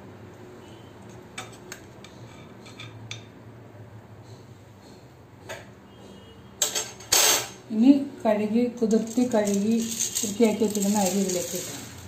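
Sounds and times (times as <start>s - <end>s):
metal clatter: 9.0s - 12.0s
tongs clinking on metal pot: 9.0s - 12.0s.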